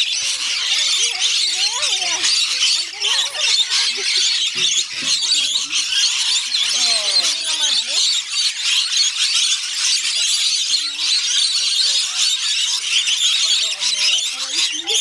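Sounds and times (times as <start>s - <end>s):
flock of parrots screeching: 0.0s - 15.0s.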